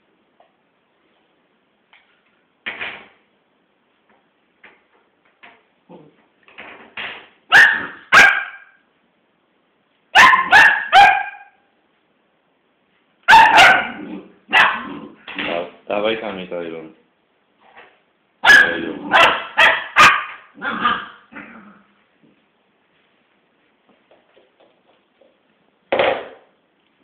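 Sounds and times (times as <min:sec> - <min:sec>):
small dog barking: 0:07.5 - 0:08.8, 0:10.2 - 0:11.6, 0:13.3 - 0:14.9, 0:18.4 - 0:21.2.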